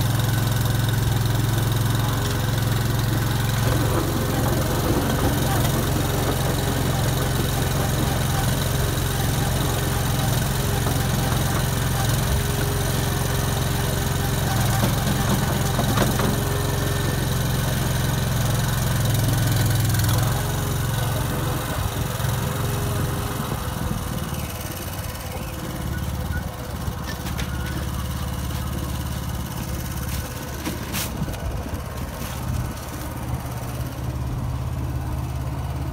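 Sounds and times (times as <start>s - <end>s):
concrete mixer engine running: 0.0s - 35.9s.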